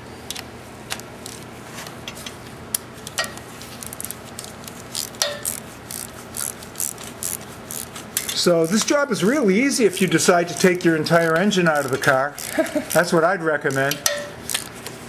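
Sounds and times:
ratchet wrench clicking: 3.2s - 9.3s, 9.9s - 14.7s.

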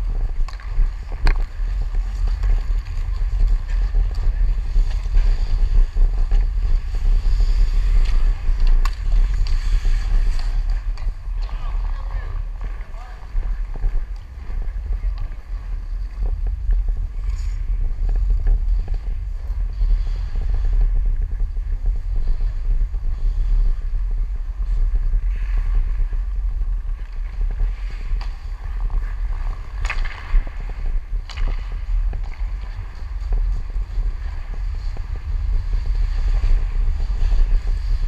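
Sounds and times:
skate blades scraping ice: 0.0s - 38.0s
wind rumble on microphone: 0.0s - 38.0s
stick and puck clicks: 0.2s - 4.3s, 7.8s - 15.8s, 29.4s - 33.4s.

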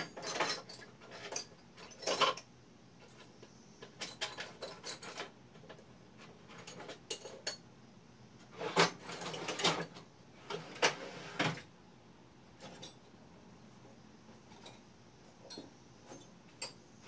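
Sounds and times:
metal parts and tools clattering: 0.0s - 7.7s, 8.6s - 10.9s, 12.6s - 13.1s, 14.4s - 16.8s.

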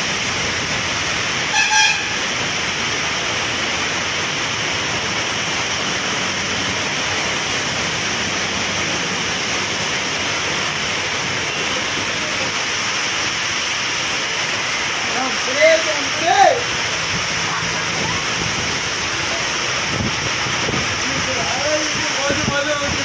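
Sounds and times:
heavy rain on street: 0.0s - 23.0s
traffic hissing on wet road: 0.0s - 23.0s
vehicle horn double beep: 1.5s - 2.2s.

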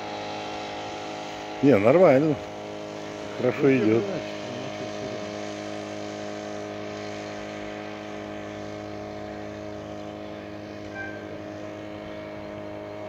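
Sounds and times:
petrol engine running steadily: 0.0s - 13.0s.

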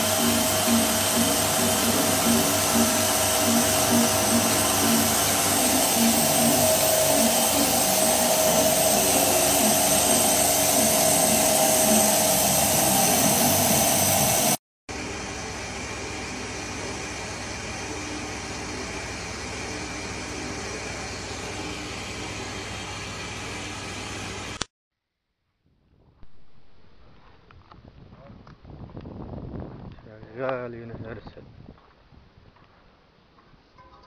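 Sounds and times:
milking machine vacuum hiss: 0.0s - 14.6s.

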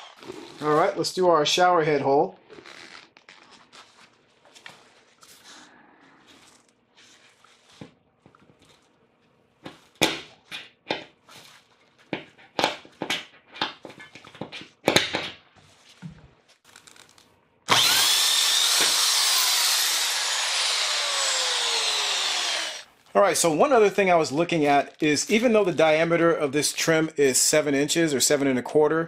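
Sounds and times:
drill boring into board: 17.7s - 22.9s.

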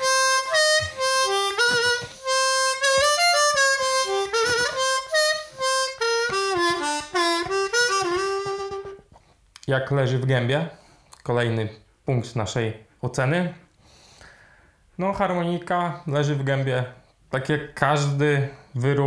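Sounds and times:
harmonica playing solo: 0.0s - 9.1s.

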